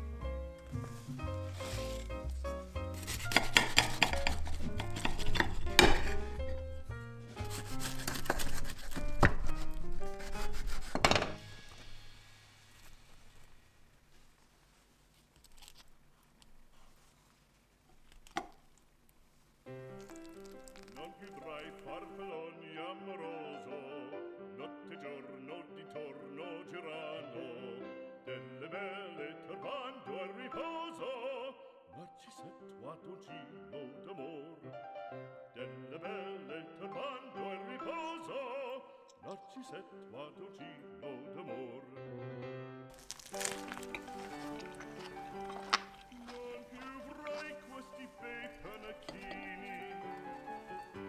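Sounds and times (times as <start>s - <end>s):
swing music: 0.0s - 12.0s, 43.0s - 51.0s
knife cutting crisp tortilla: 1.5s - 6.2s, 7.4s - 11.2s, 15.2s - 17.0s, 43.0s - 49.6s
operatic singing with vibrato: 21.0s - 34.7s, 45.8s - 51.0s.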